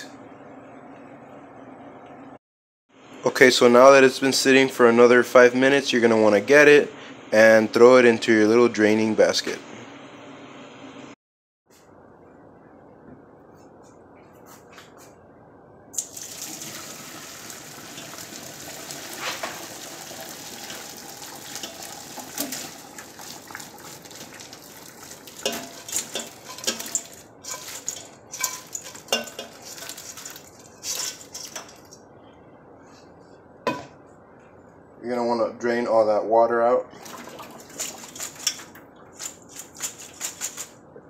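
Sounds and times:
water pouring and splashing: 16.0 - 31.7, 37.0 - 40.7
food clattering into metal colander: 20.4 - 31.9, 37.0 - 40.8.

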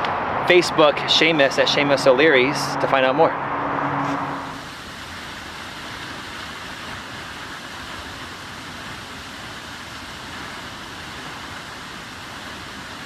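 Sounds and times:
waterfall rushing: 4.0 - 13.0.

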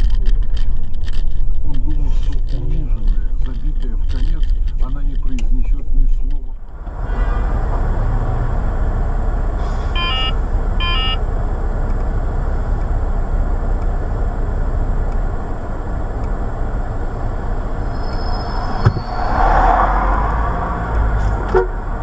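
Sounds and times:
car engine idling: 0.0 - 22.0
street traffic: 0.0 - 22.0
short high beeps: 10.0 - 11.2.

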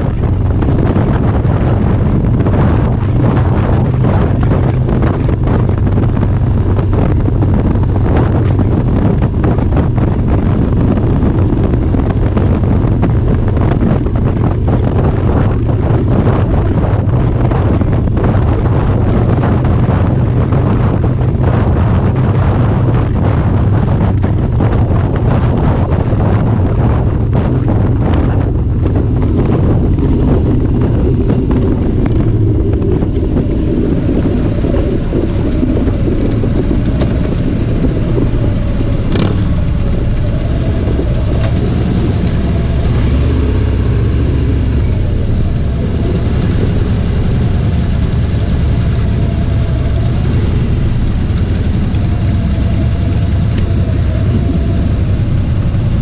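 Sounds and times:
motorcycle engines rumbling: 0.0 - 56.0
wind rushing over microphone: 0.0 - 56.0.

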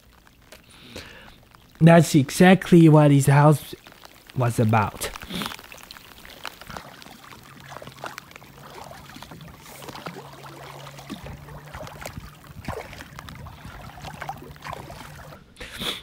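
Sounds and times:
rain pattering on sea water: 0.0 - 15.8
faint low hum: 6.7 - 15.7.

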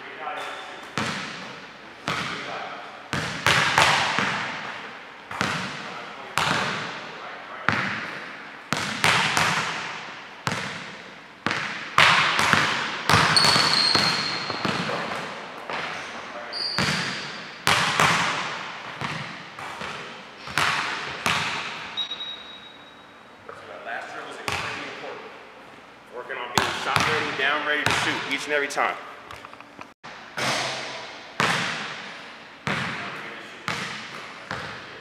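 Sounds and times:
sneaker squeaks: 0.2 - 2.4, 13.1 - 17.6, 21.3 - 23.7
basketballs bouncing on wooden floor: 0.9 - 7.0, 7.7 - 16.1, 16.7 - 22.1, 24.5 - 24.8, 26.6 - 28.3, 31.4 - 35.0.

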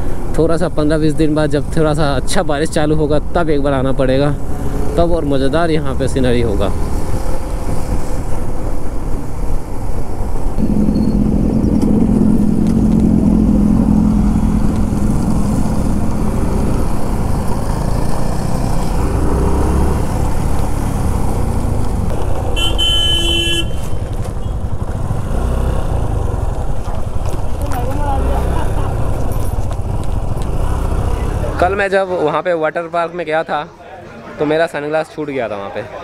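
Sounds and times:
road and wind noise: 0.0 - 36.0
motorcycle engine running: 10.5 - 31.7
vehicle horn: 22.5 - 24.7.

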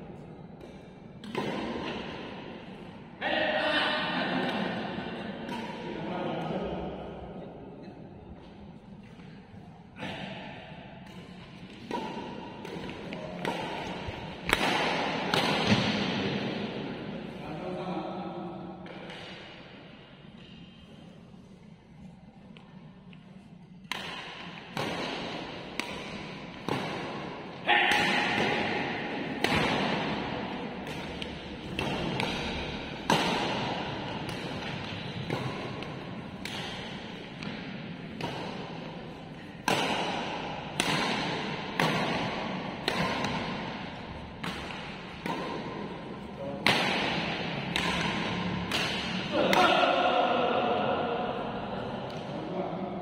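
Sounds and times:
rackets striking shuttlecock: 0.5 - 2.9, 4.4 - 6.5, 10.0 - 17.0, 23.0 - 49.9.

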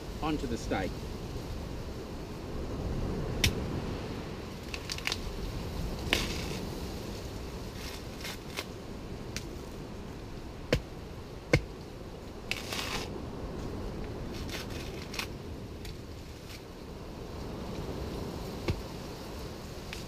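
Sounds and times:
dry fibres crackling and tearing: 4.6 - 5.4, 6.0 - 6.8, 7.7 - 8.7, 12.5 - 13.1, 14.2 - 16.7.

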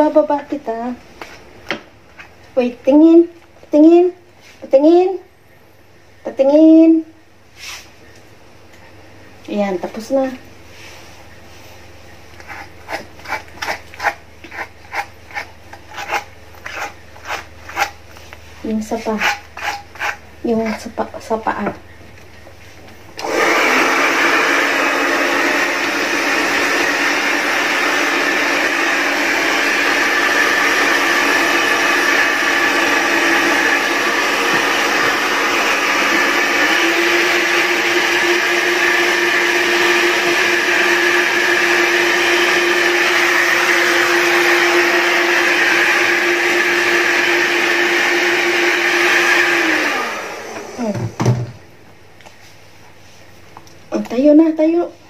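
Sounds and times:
hair dryer motor hum: 23.2 - 51.5.

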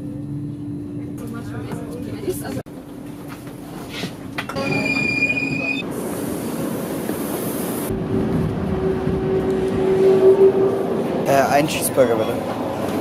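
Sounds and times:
train steady hum: 0.0 - 13.0
train high tone: 4.6 - 5.8, 8.6 - 10.9.

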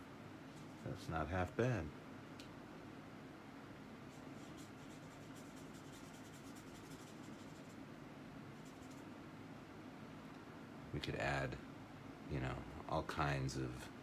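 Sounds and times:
low steady hum: 0.0 - 14.0
paintbrush strokes on paper: 4.0 - 7.8, 8.5 - 9.0.

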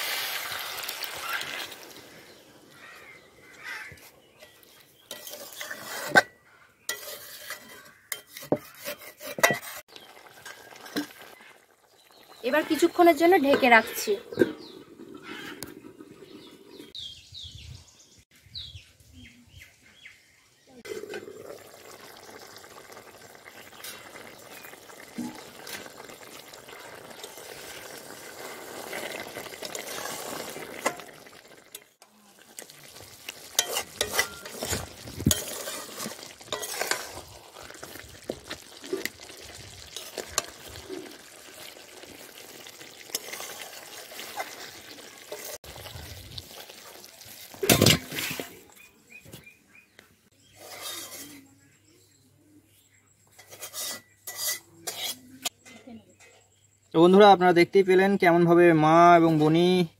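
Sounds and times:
curry sizzling and bubbling in pot: 0.0 - 17.0, 20.7 - 49.4, 50.3 - 51.5, 53.3 - 56.7
metal spatula scraping a pot: 3.1 - 17.0, 23.8 - 31.1, 32.9 - 45.7, 47.5 - 48.7, 50.4 - 51.5, 53.3 - 56.4.

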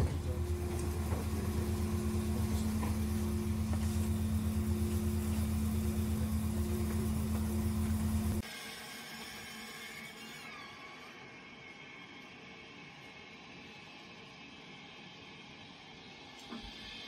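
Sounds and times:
low mechanical hum: 0.0 - 17.0.

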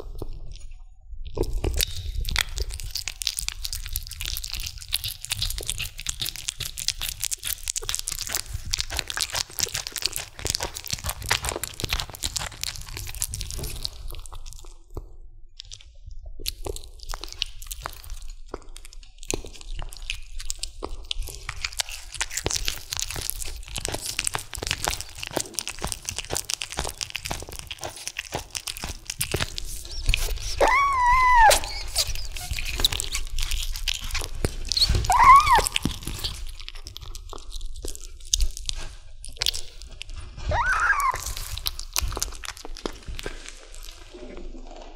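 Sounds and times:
kitten chewing and biting bone: 0.0 - 44.9
kitten high-pitched cries: 30.6 - 32.6, 34.9 - 36.0, 40.5 - 41.4.

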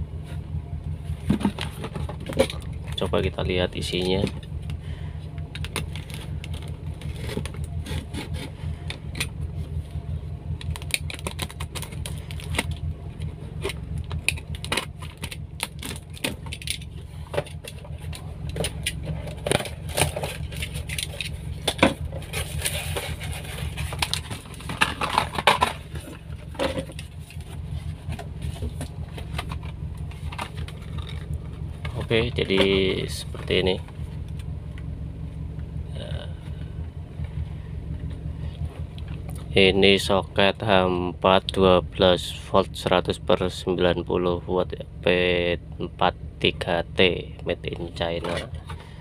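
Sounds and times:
car engine idling: 0.0 - 49.0
small cardboard boxes handled: 1.1 - 3.0, 5.4 - 9.3, 10.6 - 34.5
cardboard parcel being opened: 5.5 - 9.2, 10.7 - 12.8, 13.6 - 34.0.

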